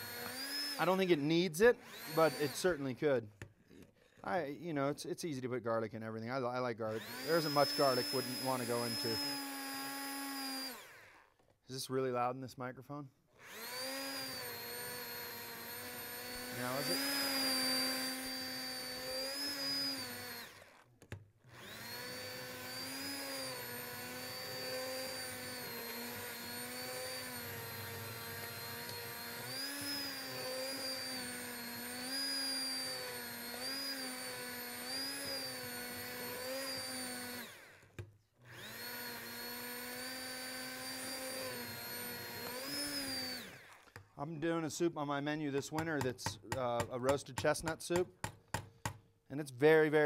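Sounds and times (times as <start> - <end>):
immersion blender motor running: 0.0 - 2.9, 6.9 - 11.4, 13.4 - 44.0.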